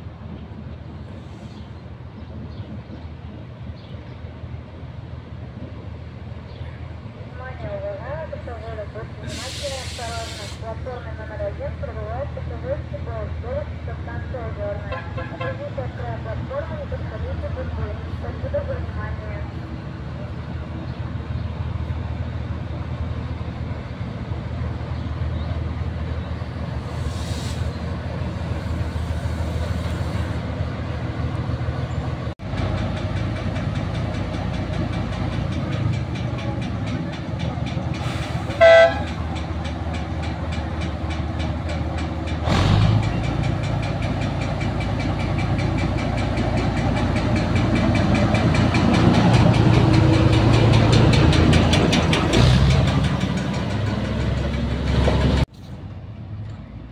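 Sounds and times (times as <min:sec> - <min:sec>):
diesel locomotive engine: 0:00.0 - 0:56.9
locomotive horn blast: 0:14.8 - 0:15.7, 0:38.2 - 0:39.2.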